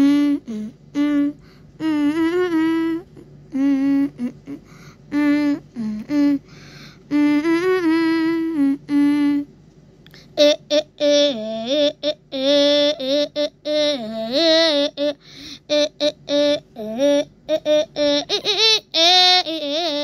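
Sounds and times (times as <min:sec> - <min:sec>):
wordless hummed melody: 0:00.0 - 0:09.5.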